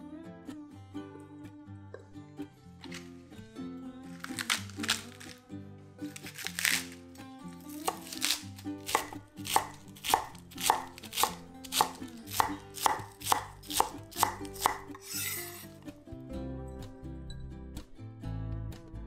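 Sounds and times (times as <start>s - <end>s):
knife chopping lettuce on board: 4.3s - 5.4s, 6.1s - 7.0s, 7.7s - 15.4s.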